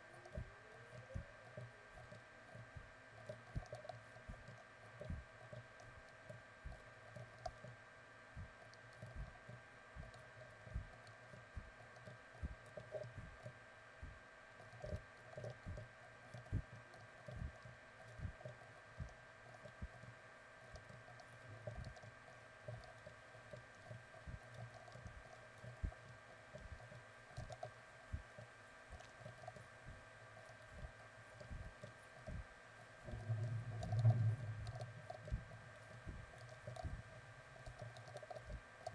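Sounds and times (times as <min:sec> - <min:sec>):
steady electrical hum: 0:00.0 - 0:38.9
computer keyboard and mouse clicks: 0:03.2 - 0:07.8, 0:08.6 - 0:09.3, 0:10.0 - 0:13.6, 0:14.6 - 0:29.7, 0:33.0 - 0:38.9.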